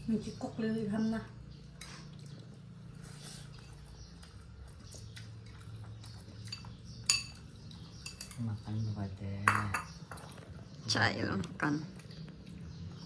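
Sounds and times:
soft chewing: 1.4s - 8.1s, 9.9s - 13.0s.

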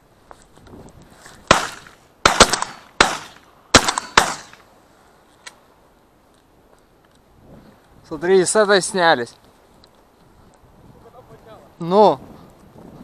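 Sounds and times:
shotgun shots: 1.5s - 4.6s.

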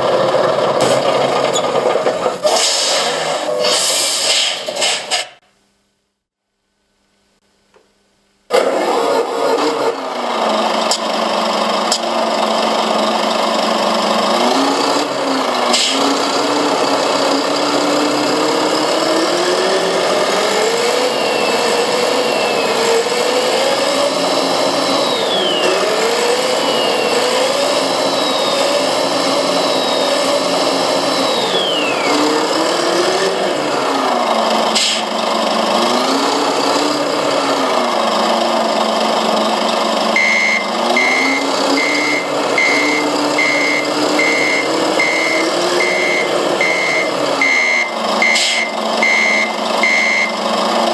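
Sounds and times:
synthesized truck engine sound: 0.0s - 5.2s, 8.5s - 50.9s
high whistle: 40.2s - 50.4s.

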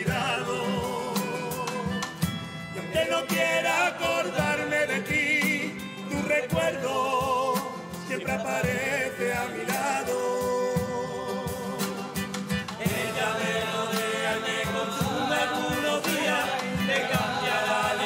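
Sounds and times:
chorus singing in harmony: 0.0s - 18.0s
guitar: 0.0s - 18.0s
steady drum beat: 0.0s - 18.0s.

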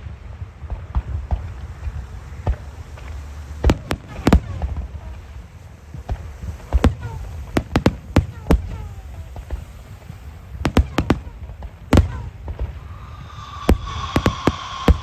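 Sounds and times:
firework shells bursting: 0.6s - 15.0s
low rumble: 12.5s - 15.0s.

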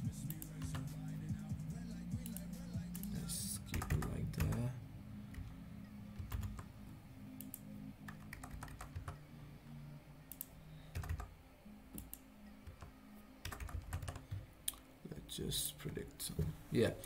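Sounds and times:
low steady hum: 0.0s - 17.0s
keyboard typing: 2.2s - 4.7s, 6.1s - 6.7s, 7.4s - 9.2s, 10.3s - 11.3s, 11.9s - 14.5s.

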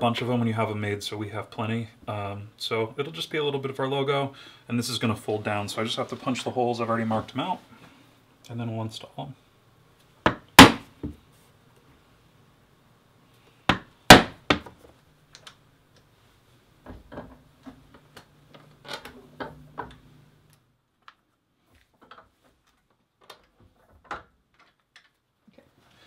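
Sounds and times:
mallet striking hole punch: 10.3s - 10.9s, 13.7s - 14.6s.

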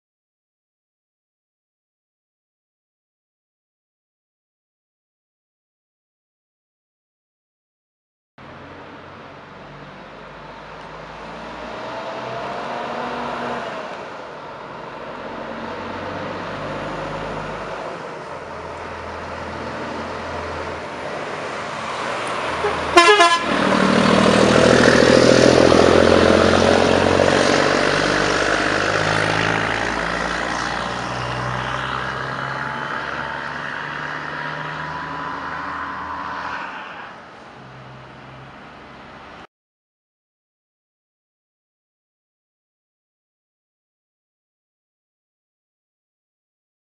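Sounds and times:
truck diesel engine driving past: 8.4s - 38.5s
truck horn blast: 22.5s - 24.0s.

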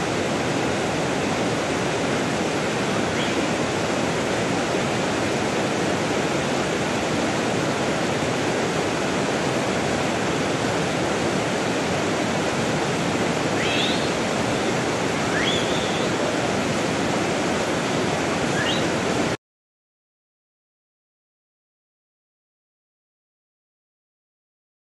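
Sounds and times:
water rushing: 0.0s - 19.4s.

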